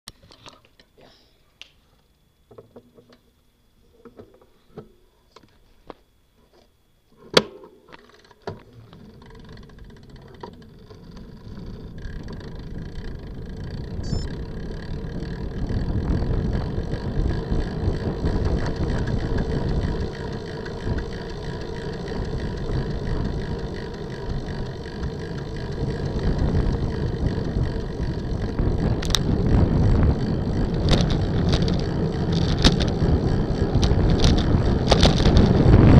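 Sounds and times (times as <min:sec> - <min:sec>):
tyre and road noise: 0:08.0 - 0:35.9
wind rushing over microphone: 0:11.9 - 0:35.9.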